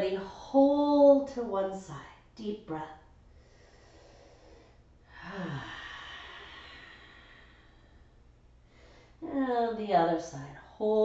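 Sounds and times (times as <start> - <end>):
woman sighing and exhaling: 5.1 - 7.7.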